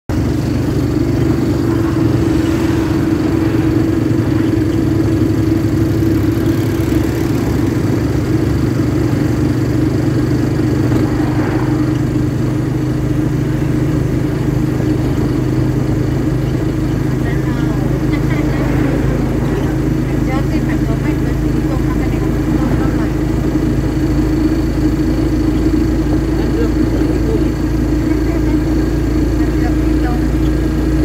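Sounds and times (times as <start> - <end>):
vehicle engine humming: 0.0 - 31.0
road and wind noise: 0.1 - 31.0.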